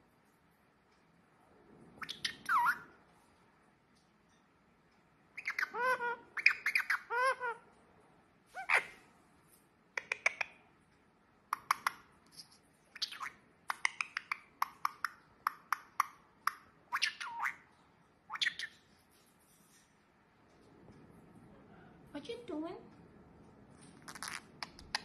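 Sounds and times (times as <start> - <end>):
parakeet warbled calls: 2.0 - 2.9, 5.4 - 7.6, 8.6 - 9.0, 16.9 - 17.7
parakeet sharp chirps and clicks: 2.0 - 3.0, 5.3 - 7.7, 8.6 - 9.0, 9.9 - 10.7, 11.4 - 19.0, 23.9 - 25.0.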